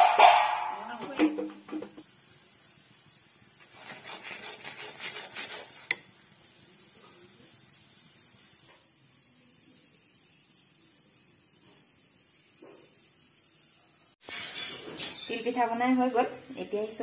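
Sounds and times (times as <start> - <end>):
faint steady sizzle: 0.6 - 17.0
syrup bubbling: 2.4 - 8.5
metal spatula scraping pan: 3.6 - 6.0, 14.2 - 15.3.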